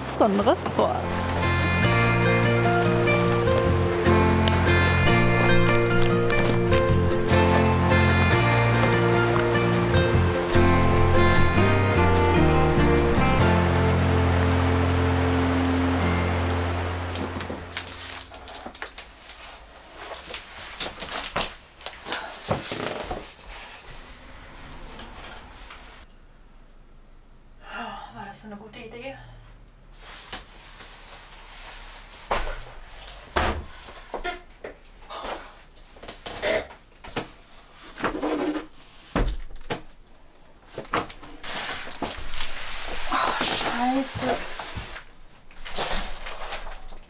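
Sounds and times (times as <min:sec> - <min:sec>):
background music: 0:00.0 - 0:18.2.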